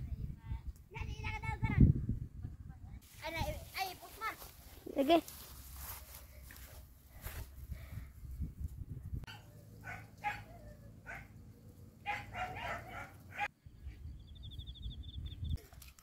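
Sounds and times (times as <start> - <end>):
wind rumble on microphone: 0.0 - 3.6, 7.1 - 9.3, 12.8 - 15.6
dog barking and yipping: 9.3 - 11.4, 12.0 - 13.5.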